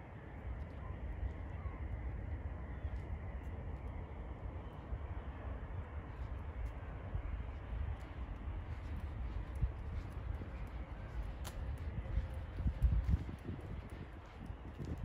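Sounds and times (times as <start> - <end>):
distant city noise: 0.0 - 15.0
low rumble: 0.0 - 15.0.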